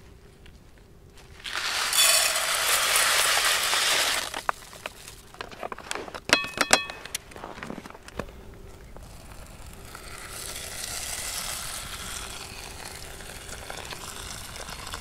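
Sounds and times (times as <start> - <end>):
rice pouring into metal pot: 1.4 - 5.3, 9.2 - 15.0
metallic clinks: 6.3 - 7.2.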